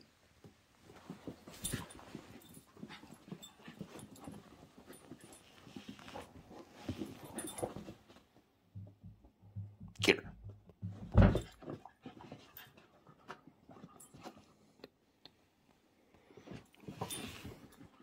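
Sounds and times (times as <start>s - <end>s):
dogs scuffling: 0.4s - 8.6s.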